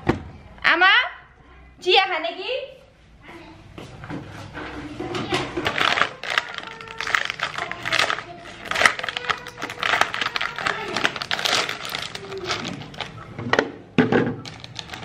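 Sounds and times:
plastic wrapper crinkling: 5.6s - 13.3s, 14.4s - 15.0s.

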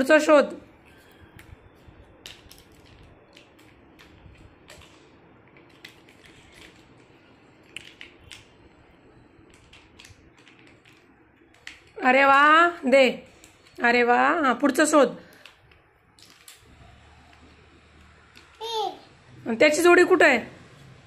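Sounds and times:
plastic toys clicking and tapping: 2.2s - 8.6s, 9.4s - 12.6s, 13.3s - 13.8s, 15.3s - 16.6s, 18.3s - 18.7s.

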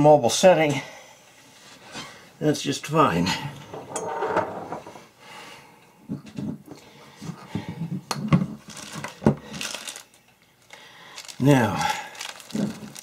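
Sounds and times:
plastic bag of screws rustling: 8.6s - 13.0s.

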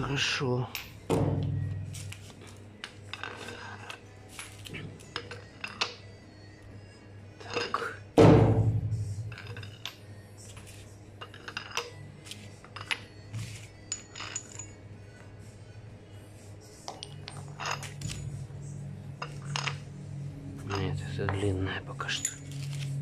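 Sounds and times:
loud metallic clang: 1.0s - 1.9s, 8.2s - 9.3s
metal parts clinking: 2.8s - 6.0s, 7.4s - 8.0s, 9.2s - 14.8s, 17.0s - 18.5s, 19.2s - 19.8s, 22.0s - 23.0s.

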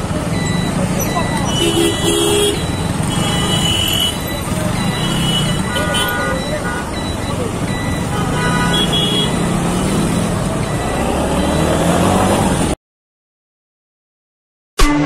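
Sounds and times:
road traffic noise: 0.0s - 12.8s
vehicle horn: 1.5s - 7.0s, 8.0s - 9.5s
motorcycle engine accelerating: 7.5s - 12.8s.

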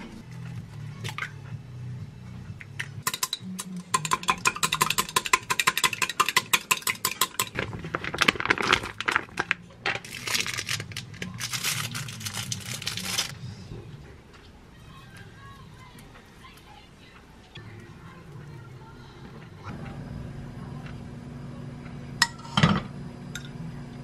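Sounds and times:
plastic wrapper crinkling: 7.5s - 13.4s.

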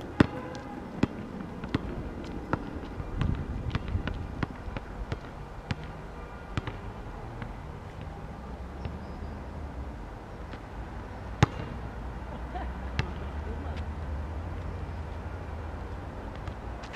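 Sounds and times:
basketball bouncing on asphalt: 0.0s - 8.2s, 11.4s - 11.8s, 12.9s - 13.8s, 16.3s - 16.9s.

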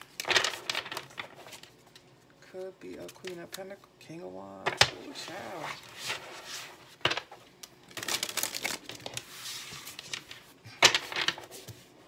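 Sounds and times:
cards rustling: 0.0s - 3.8s, 7.9s - 11.9s.

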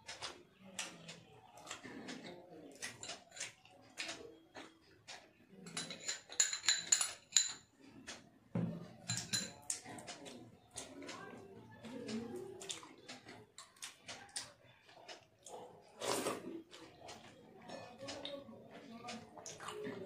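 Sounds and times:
glass bowl clinking against plate: 5.7s - 7.6s, 9.1s - 9.6s
soft clicks and taps of hand-eating: 12.0s - 15.7s.

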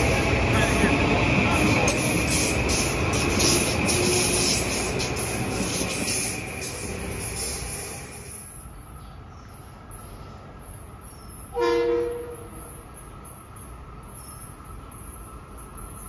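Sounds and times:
insects chirring: 0.0s - 9.0s, 12.3s - 16.0s
train horn blast: 11.6s - 12.8s.

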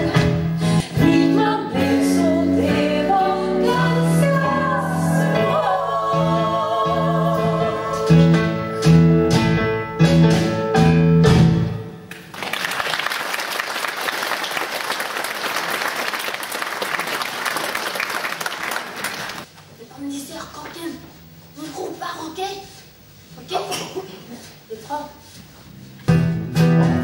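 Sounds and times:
women singing: 0.0s - 8.2s
instrumental backing: 0.0s - 12.1s, 25.3s - 27.0s
audience applauding: 12.1s - 19.5s.

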